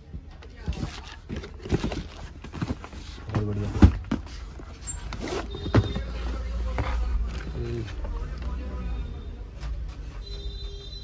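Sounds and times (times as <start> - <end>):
cardboard boxes knocking and scraping: 0.4 - 7.5.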